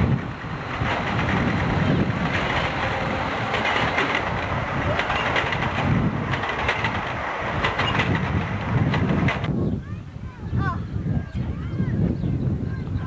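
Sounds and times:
train wheels clicking over rail joints: 0.0s - 9.5s
low train rumble: 0.0s - 13.0s.

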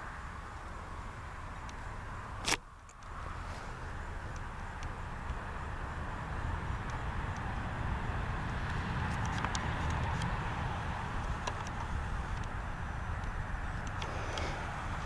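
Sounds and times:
low rumble and hiss: 0.0s - 15.0s
sharp click: 2.4s - 3.1s.

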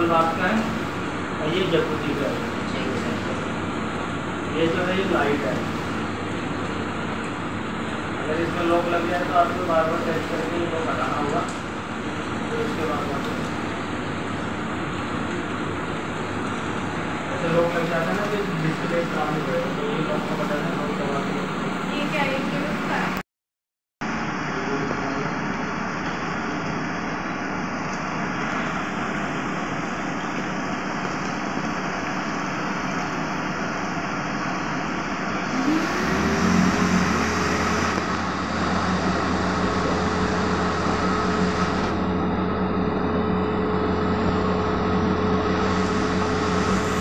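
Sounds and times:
whirlpool jets churning water: 0.0s - 23.2s, 24.1s - 47.0s
motor hum rising: 24.0s - 47.0s.

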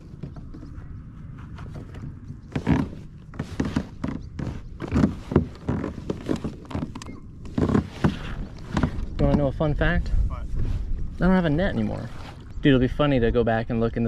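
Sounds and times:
hollow knocks on plastic kayak: 7.5s - 9.4s.

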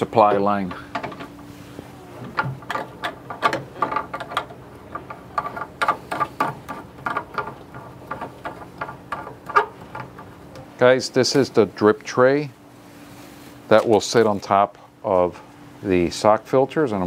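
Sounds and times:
hard plastic parts clicking: 0.3s - 1.4s, 2.2s - 10.7s.

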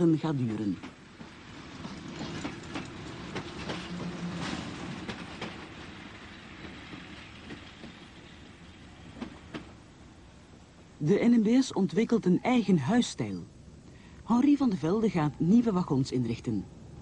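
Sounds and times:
wheels clicking over rail joints: 0.6s - 9.8s
electric train running: 0.8s - 9.7s.

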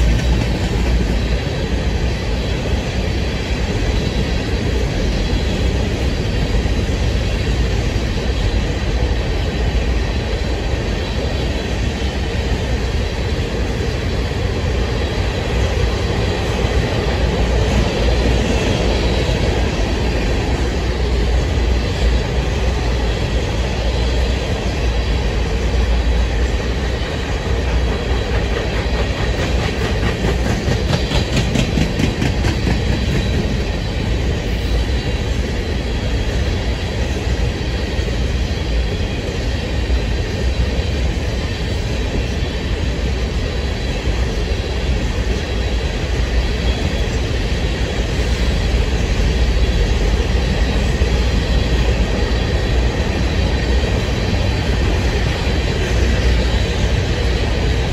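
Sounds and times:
clickety-clack over rail joints: 0.0s - 57.9s
steel wheels rumbling on rail: 0.0s - 57.9s.

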